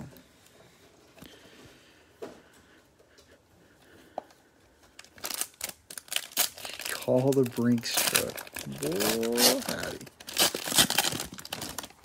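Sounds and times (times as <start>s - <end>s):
plastic wrapper crackling: 5.0s - 12.0s.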